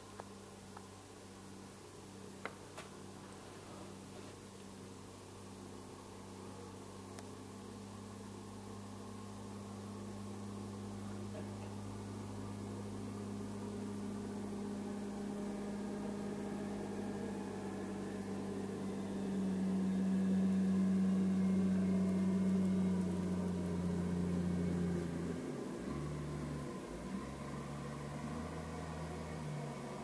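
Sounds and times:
wheel loader diesel engine: 0:07.4 - 0:30.0.

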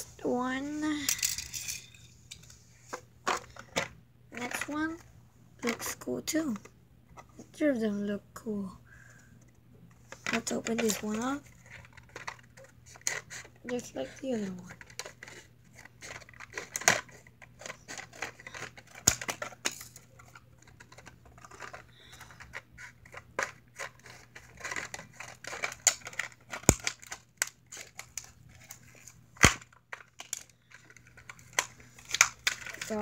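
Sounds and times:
plastic packaging crinkling and tearing: 0:14.3 - 0:33.0
plastic snapping: 0:24.6 - 0:28.3, 0:29.4 - 0:32.9.

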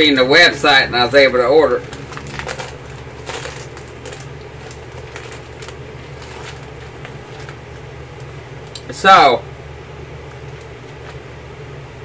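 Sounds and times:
low steady hum: 0:00.0 - 0:12.0
plastic packaging crinkling: 0:01.0 - 0:08.8, 0:10.2 - 0:11.3.

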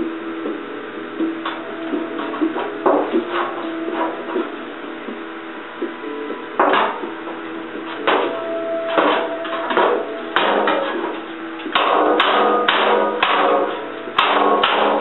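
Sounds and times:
background music with beat: 0:00.0 - 0:15.0.

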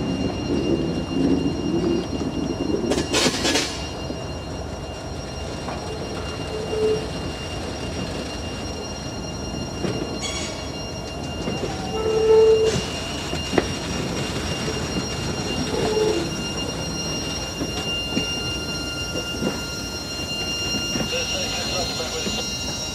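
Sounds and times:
train wheels squealing: 0:00.0 - 0:22.9.

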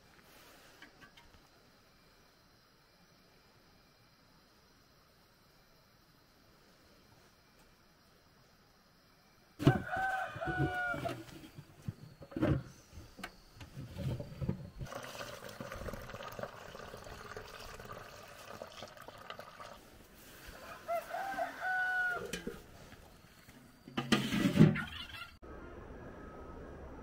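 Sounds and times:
rooster crowing: 0:09.6 - 0:11.5, 0:20.5 - 0:22.7
liquid pouring through strainer: 0:14.8 - 0:19.8.

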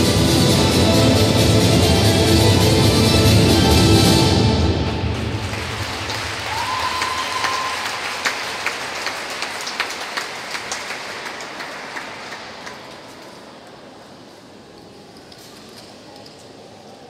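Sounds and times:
audience applause: 0:05.0 - 0:13.0.

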